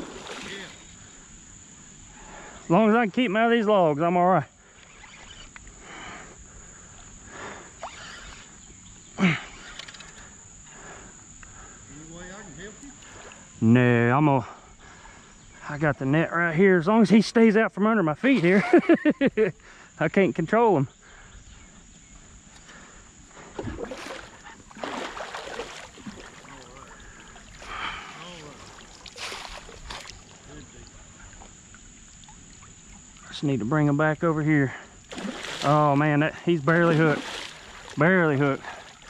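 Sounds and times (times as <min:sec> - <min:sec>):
crickets droning: 0:00.0 - 0:39.0
fish splashing in water: 0:23.6 - 0:30.4, 0:35.1 - 0:36.0, 0:36.8 - 0:39.0.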